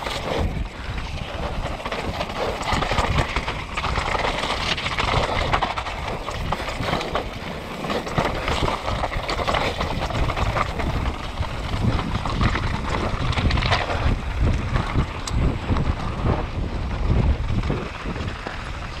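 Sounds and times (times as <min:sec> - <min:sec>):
bike frame and chain clattering: 0:00.0 - 0:19.0
tyres crunching over gravel: 0:00.0 - 0:19.0.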